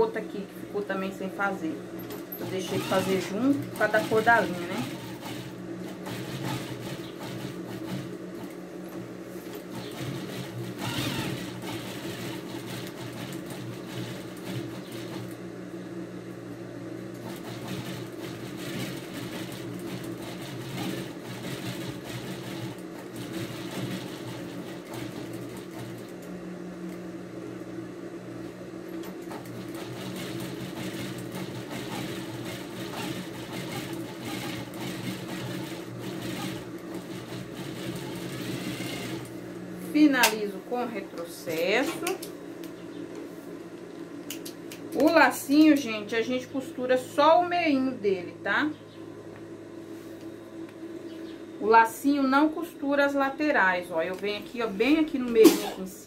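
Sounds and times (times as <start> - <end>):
electric sewing machine running: 1.9 - 8.6, 9.6 - 15.5, 17.0 - 26.4, 29.1 - 39.4.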